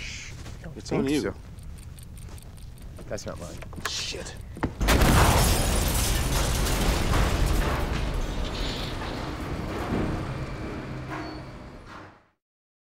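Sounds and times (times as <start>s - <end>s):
scattered crackles: 0.3s - 9.8s
bomb explosion rumble: 4.8s - 10.6s.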